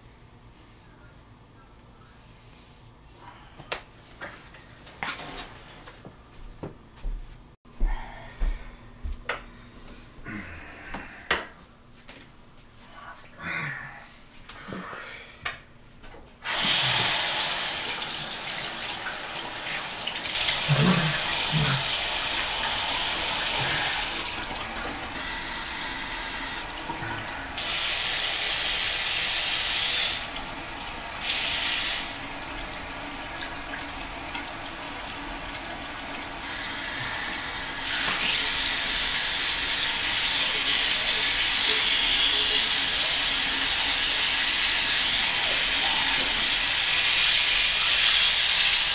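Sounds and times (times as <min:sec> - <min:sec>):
faucet running into sink: 0:16.5 - 0:25.2, 0:26.2 - 0:48.9.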